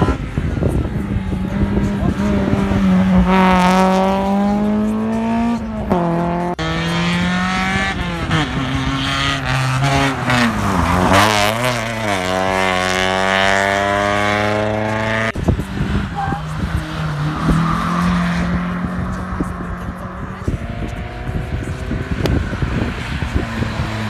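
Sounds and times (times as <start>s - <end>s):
racing car engine accelerating: 0.0s - 24.0s.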